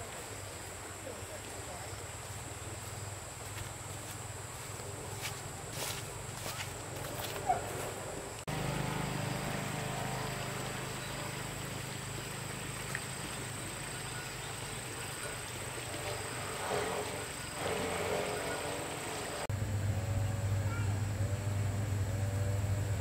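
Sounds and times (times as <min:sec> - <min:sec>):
insects droning: 0:00.0 - 0:23.0
low hum: 0:19.5 - 0:23.0.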